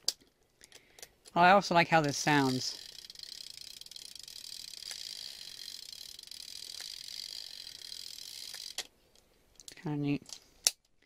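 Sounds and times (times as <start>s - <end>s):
clockwork camera motor whirring: 2.2s - 8.9s.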